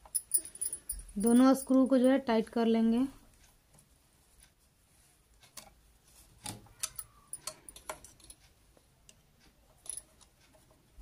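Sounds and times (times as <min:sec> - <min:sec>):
screwdriver clicking on metal screws: 0:06.4 - 0:08.5.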